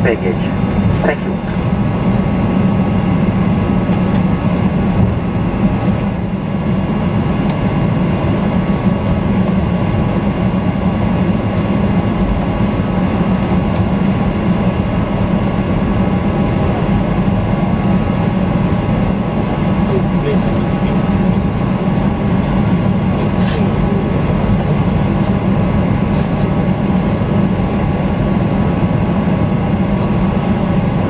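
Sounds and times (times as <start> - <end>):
jet engines humming: 0.0 - 31.0.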